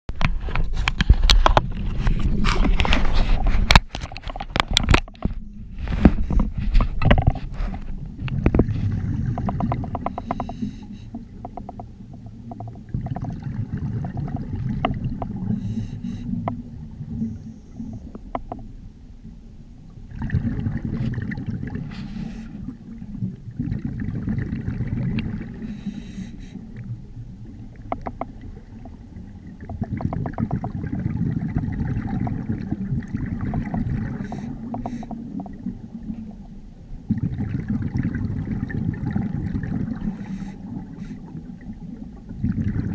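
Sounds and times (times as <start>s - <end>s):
rumble of exhaled bubbles: 0.1s - 42.9s
regulator hiss on inhale: 10.1s - 11.2s, 15.5s - 16.4s, 21.9s - 22.7s, 25.6s - 26.8s, 34.2s - 35.3s, 40.0s - 41.3s.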